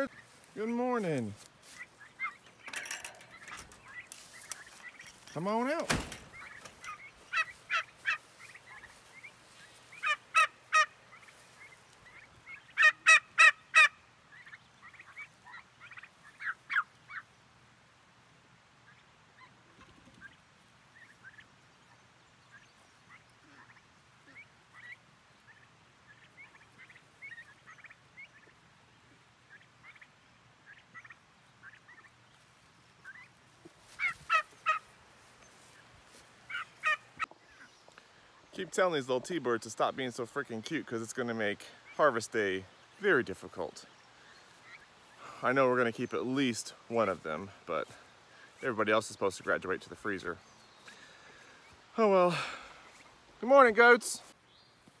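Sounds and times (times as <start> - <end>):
turkey poults peeping: 0.0 - 55.0.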